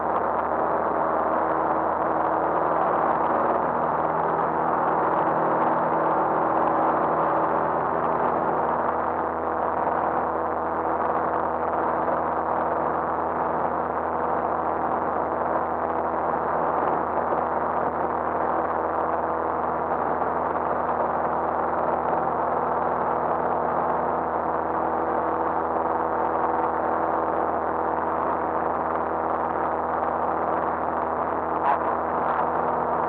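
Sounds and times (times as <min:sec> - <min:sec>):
propeller aircraft engine drone: 0:00.0 - 0:33.0.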